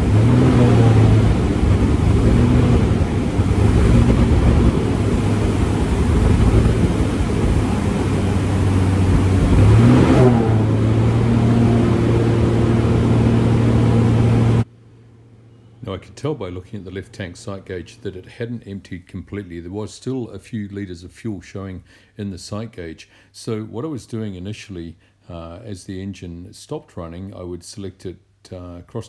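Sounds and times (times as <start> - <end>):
aircraft engine surging: 0.0 - 14.7.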